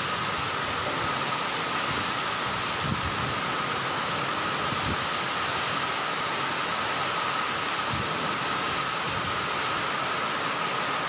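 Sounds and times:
heavy rain hissing: 0.0s - 11.0s.

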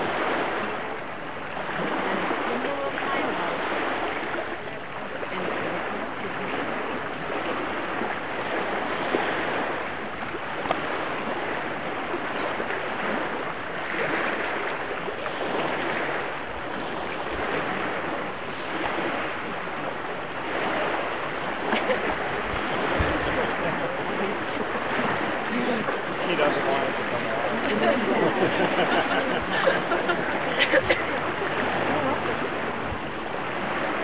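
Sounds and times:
breeze: 0.0s - 34.0s
lake water rushing: 0.0s - 34.0s.

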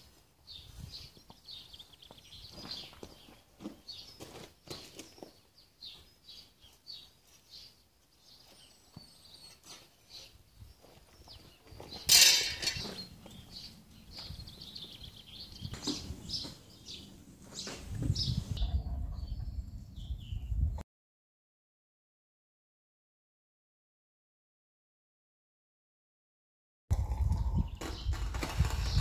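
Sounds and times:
small birds chirping: 0.0s - 20.8s.

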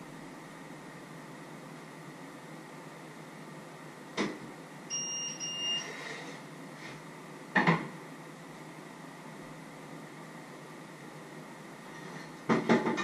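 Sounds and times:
short electronic beeps: 4.9s - 6.0s.

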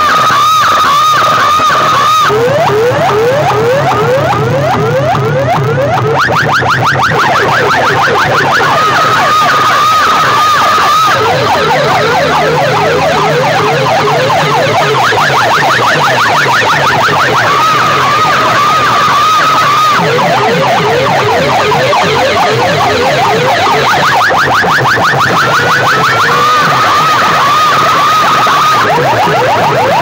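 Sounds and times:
electronic siren effect: 0.0s - 30.0s.

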